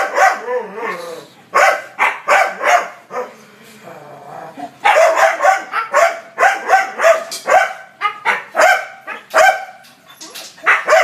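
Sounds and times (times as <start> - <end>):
dogs barking: 0.0 - 3.4, 4.7 - 11.0.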